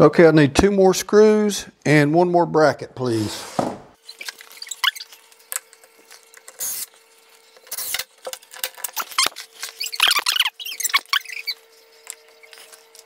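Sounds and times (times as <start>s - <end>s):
short squeaks: 4.0s - 5.2s, 8.9s - 13.0s
clicks and rustles of handling hardware: 7.6s - 10.4s.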